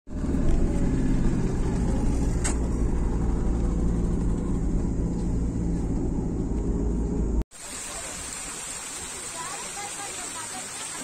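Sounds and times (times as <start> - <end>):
vehicle engine and road rumble: 0.1 - 7.5.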